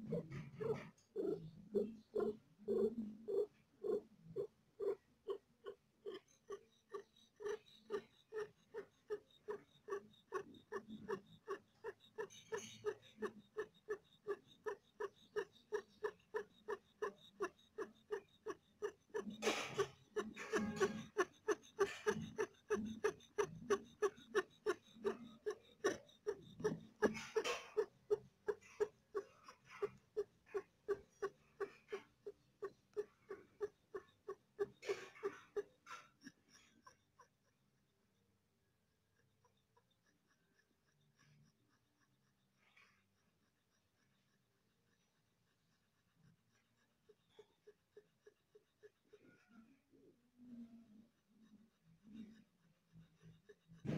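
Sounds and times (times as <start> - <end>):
cat whimpering: 0.0 - 5.4.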